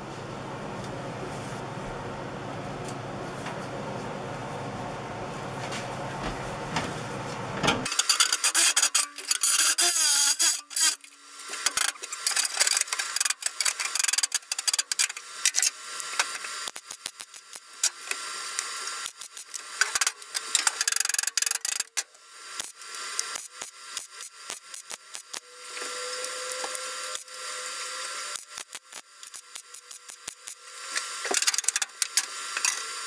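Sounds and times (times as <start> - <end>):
arc welder crackling: 7.8 - 33.0.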